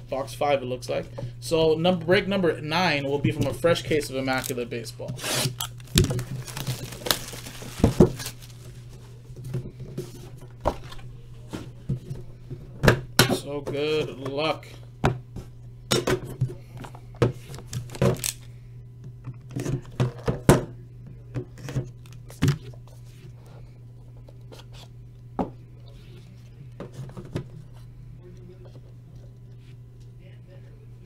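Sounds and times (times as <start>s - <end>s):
steady low hum: 0.0s - 31.0s
card box being handled and opened: 4.3s - 8.9s.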